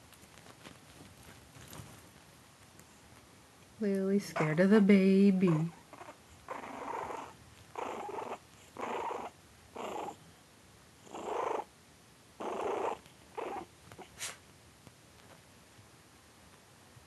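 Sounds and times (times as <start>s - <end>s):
puppy growling: 5.4s - 10.2s, 11.0s - 11.7s, 12.4s - 14.1s.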